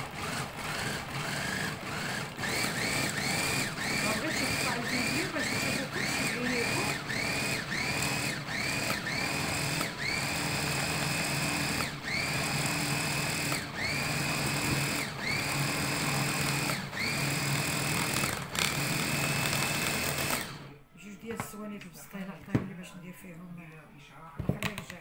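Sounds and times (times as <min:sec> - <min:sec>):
electric chopper motor whining: 0:00.0 - 0:20.8.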